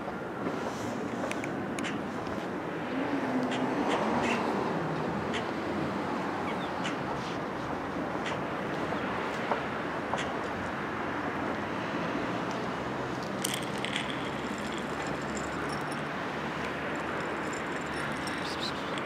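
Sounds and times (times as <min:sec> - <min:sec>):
street traffic: 0:00.0 - 0:19.0
plastic bottle of dry food rattling: 0:13.2 - 0:16.1, 0:16.9 - 0:19.0.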